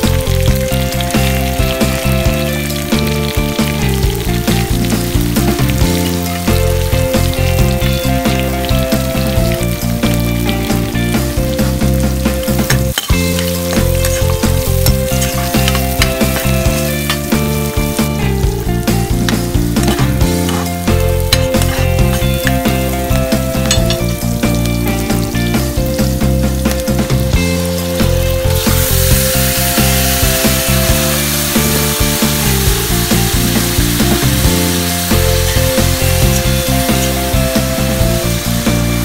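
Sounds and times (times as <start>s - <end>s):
onion and garlic sizzling in oil: 0.0s - 39.0s
spatula stirring in wok: 12.6s - 17.6s, 19.2s - 22.9s.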